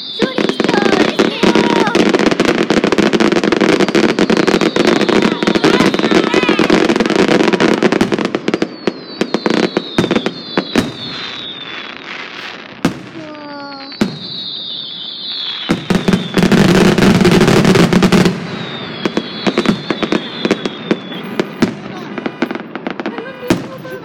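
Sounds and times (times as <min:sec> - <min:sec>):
falling firework whistles: 0:00.0 - 0:24.0
fireworks bangs and crackling: 0:00.0 - 0:24.0.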